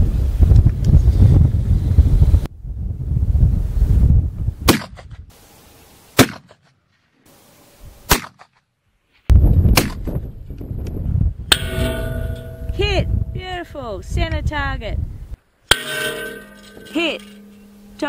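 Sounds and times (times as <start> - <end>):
wind buffeting microphone: 0.0 - 5.4, 9.3 - 15.4
rifle shots: 6.2 - 6.6
steel target plate ringing: 11.5 - 13.6, 15.7 - 18.0.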